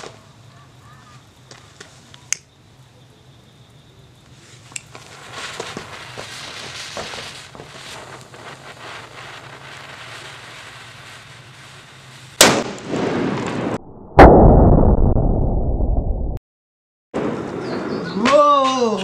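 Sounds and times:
firecracker explosion: 0:00.0 - 0:00.3, 0:04.3 - 0:15.2, 0:17.2 - 0:18.4
deep blast: 0:12.4 - 0:16.4.

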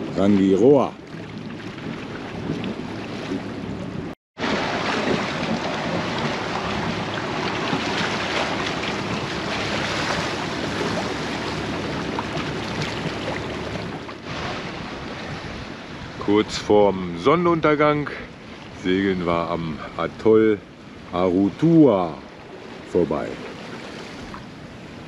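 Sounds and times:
wind buffeting microphone: 0:00.0 - 0:19.8
water rushing along a hull: 0:00.0 - 0:25.0.

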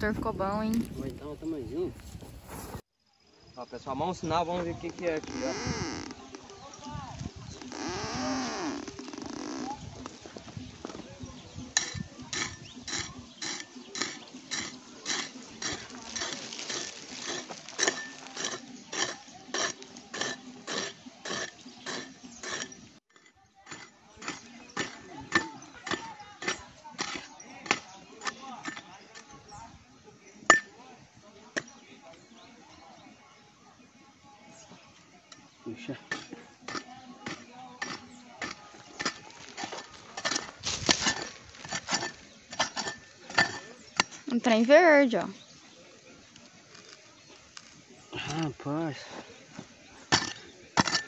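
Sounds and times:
pick striking stony soil: 0:10.8 - 0:29.4, 0:35.3 - 0:44.4, 0:49.6 - 0:51.0.

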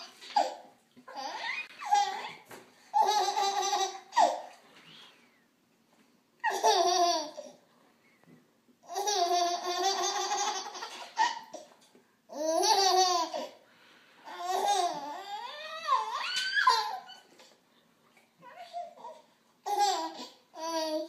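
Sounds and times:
baby laughing: 0:00.0 - 0:04.5, 0:06.4 - 0:07.6, 0:08.8 - 0:11.7, 0:12.3 - 0:13.6, 0:14.3 - 0:17.5, 0:18.6 - 0:21.0.

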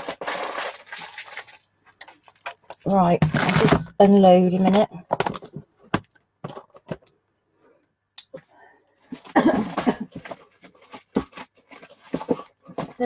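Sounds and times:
packaging rustling: 0:00.0 - 0:03.9, 0:09.1 - 0:13.0.

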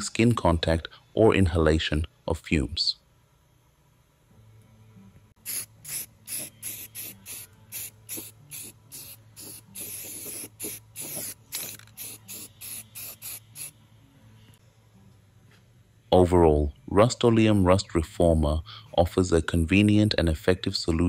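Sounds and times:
aerosol can spraying: 0:05.4 - 0:13.8.

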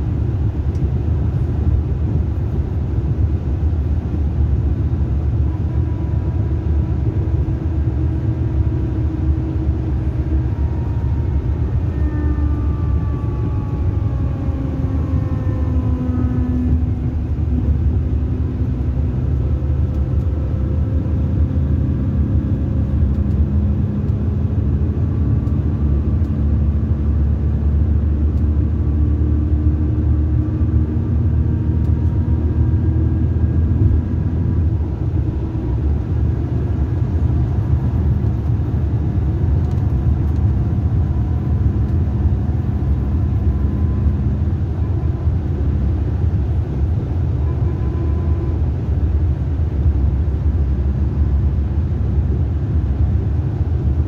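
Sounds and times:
bus engine and road drone: 0:00.0 - 0:54.0
faint whines: 0:05.4 - 0:20.6.

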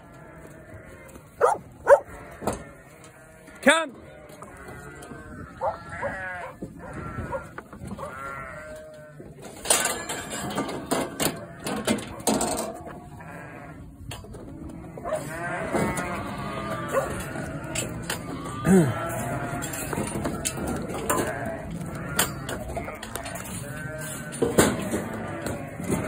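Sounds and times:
sheep bleating: 0:00.0 - 0:09.3, 0:12.9 - 0:14.0, 0:14.6 - 0:26.0
gates knocking and rattling: 0:07.0 - 0:13.0, 0:15.6 - 0:26.0.

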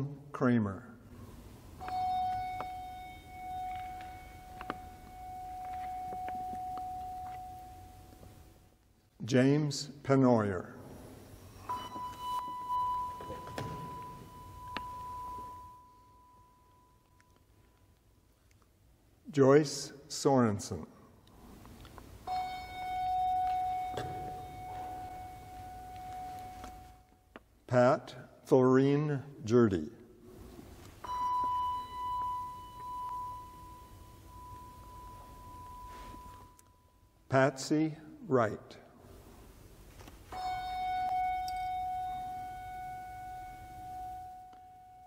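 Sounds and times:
bell ringing a clear tone: 0:01.8 - 0:08.6, 0:11.4 - 0:17.9, 0:22.2 - 0:27.1, 0:31.0 - 0:37.3, 0:40.3 - 0:45.0.

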